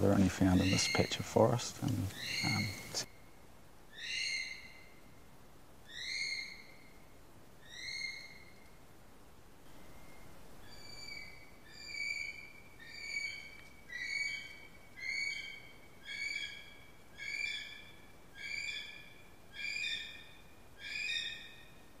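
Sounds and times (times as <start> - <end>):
kiwi bird whistled calls: 0.5 - 1.2, 2.1 - 3.0, 5.9 - 6.9, 7.6 - 8.6, 10.0 - 20.2, 20.8 - 21.7.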